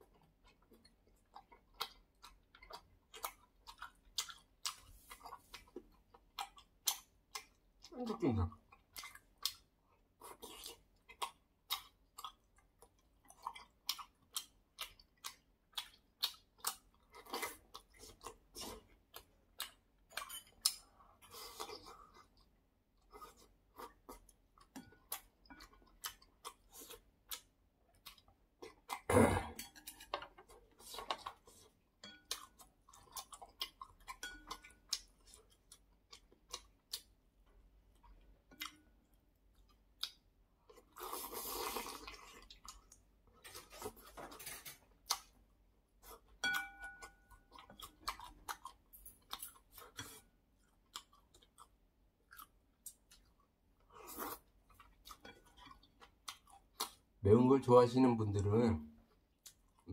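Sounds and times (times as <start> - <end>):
man chewing and slurping noodles: 0.0 - 57.2, 59.1 - 59.9
spoon and chopsticks clinking bowls: 34.1 - 34.8, 46.4 - 47.3.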